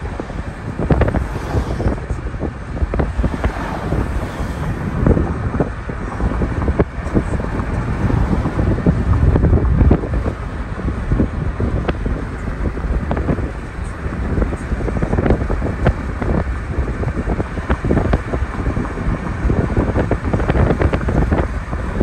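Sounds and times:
road traffic passing: 0.0 - 22.0
wind buffeting microphone: 0.0 - 22.0.

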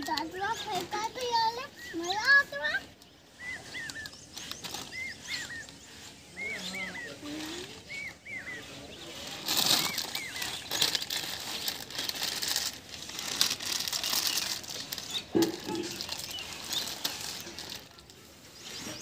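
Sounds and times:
plastic bag crinkling: 3.6 - 5.7, 9.1 - 19.0.

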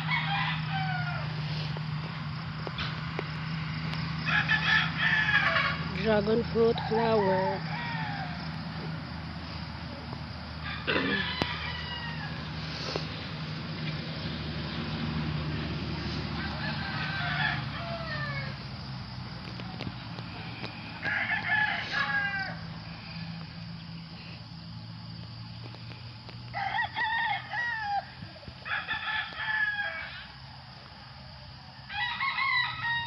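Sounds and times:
rooster crowing: 0.0 - 1.4, 4.2 - 6.0, 6.8 - 8.8, 10.5 - 12.6, 16.2 - 18.9, 20.4 - 23.3, 26.5 - 30.4, 31.6 - 33.0.

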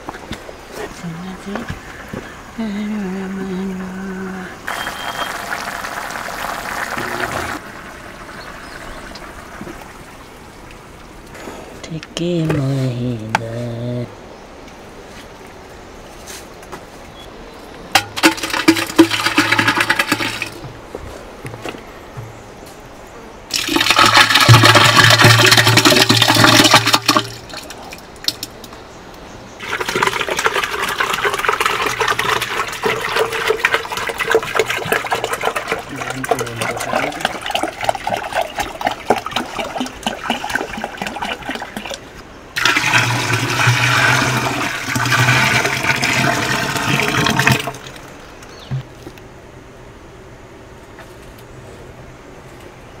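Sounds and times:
liquid pouring into wooden vessel: 4.7 - 10.0, 18.0 - 20.7, 23.5 - 28.5, 29.6 - 48.1
water pouring into plastic bucket: 4.7 - 10.0, 18.0 - 20.6, 23.5 - 28.4, 29.6 - 48.1.

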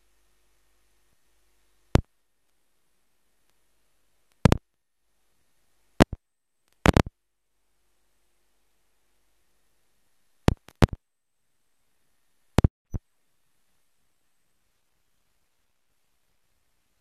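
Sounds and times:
sharp clicks: 4.3 - 4.6, 6.0 - 7.1, 10.5 - 11.0.

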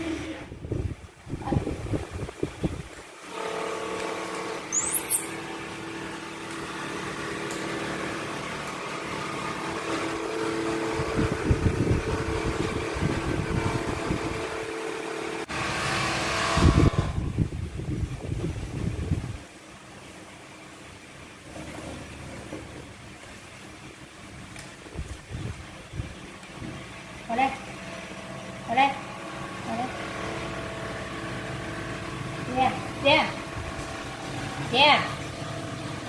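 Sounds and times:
air buffeting microphone: 0.0 - 3.1, 11.0 - 14.4, 16.6 - 19.5, 24.8 - 26.9
electric fan motor hum: 0.0 - 36.0
high squeak: 4.7 - 5.4.

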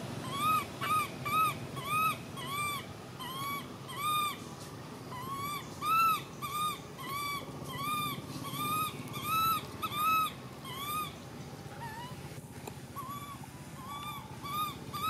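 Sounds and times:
baby monkey screaming: 0.2 - 12.2, 12.9 - 15.0.

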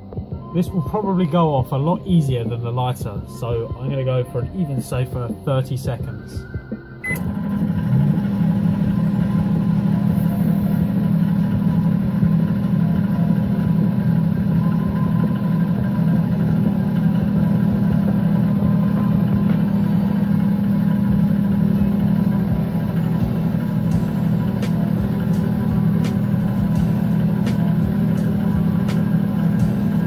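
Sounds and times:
microwave oven humming: 6.4 - 30.0.

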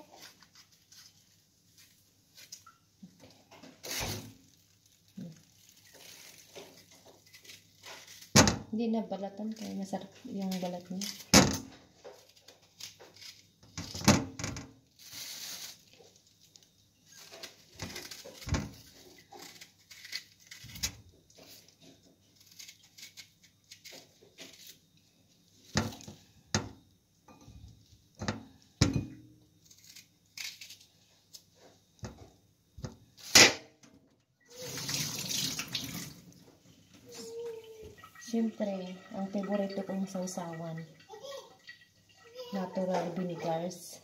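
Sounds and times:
knife cutting fruit: 17.3 - 24.8
kitchen tap running: 34.5 - 36.4, 37.2 - 43.9.

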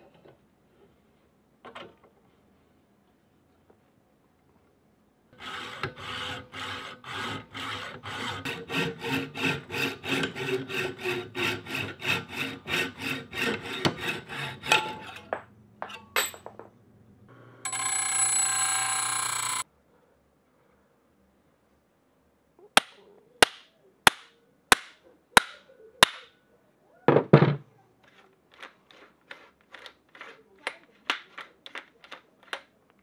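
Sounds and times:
hacksaw cutting metal tube: 5.4 - 15.3.

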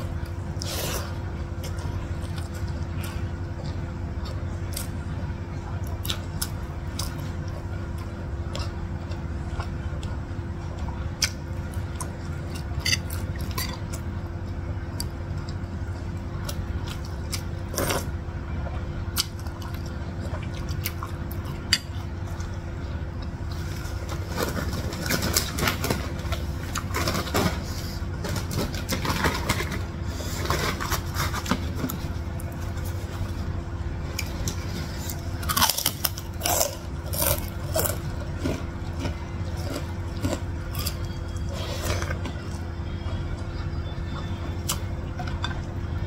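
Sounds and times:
low hum: 0.0 - 46.0
chewing: 34.1 - 42.5.

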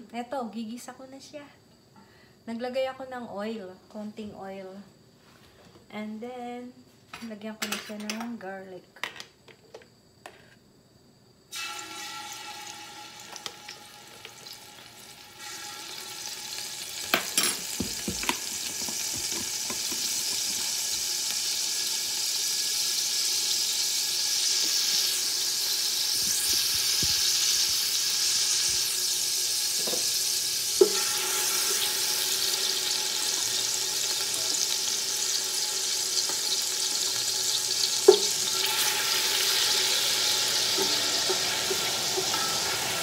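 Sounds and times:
garlic sizzling in oil: 11.5 - 43.0.

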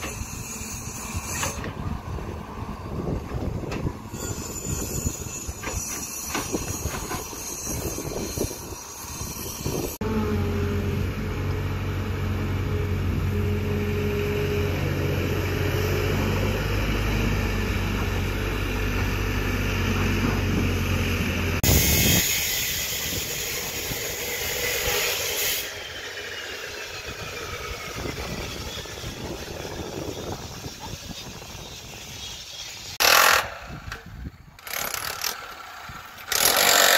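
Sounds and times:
outdoor noise: 0.0 - 36.9
excavator diesel engine running: 10.0 - 21.6
loud hiss: 21.6 - 33.4.

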